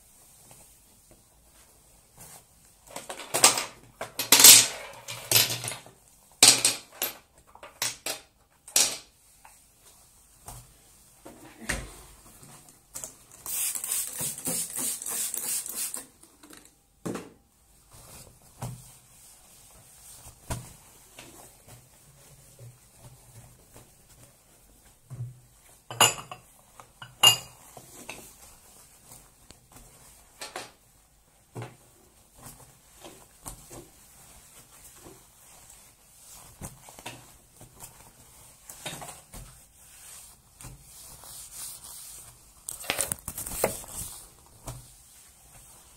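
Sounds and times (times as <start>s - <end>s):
rubbing and wiping counter: 13.3s - 16.4s, 17.8s - 45.9s
spray bottle squirting: 13.4s - 16.1s.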